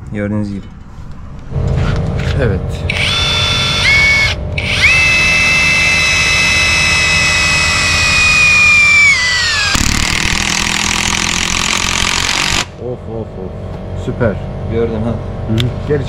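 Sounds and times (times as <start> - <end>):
impact driver motor whine: 2.9 - 12.7
impact mechanism rattle: 7.9 - 12.7.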